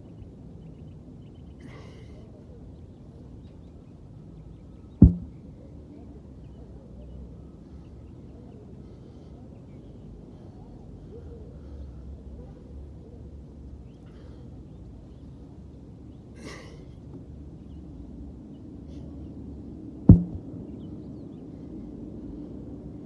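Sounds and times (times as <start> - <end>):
low outdoor rumble: 0.0 - 7.8, 10.0 - 23.0
sharp loud thump: 5.0 - 5.4, 20.1 - 20.5.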